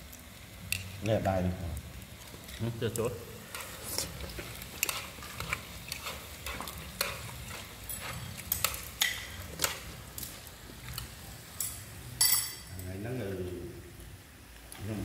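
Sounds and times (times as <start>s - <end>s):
food sizzling in wok: 0.0s - 15.0s
chopsticks clicking on plates: 3.5s - 12.5s.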